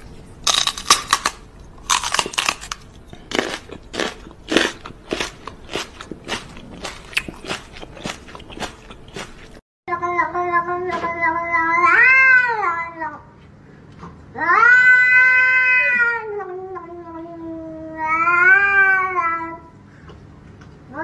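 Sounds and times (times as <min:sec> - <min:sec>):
cat yowling: 0:14.4 - 0:16.4.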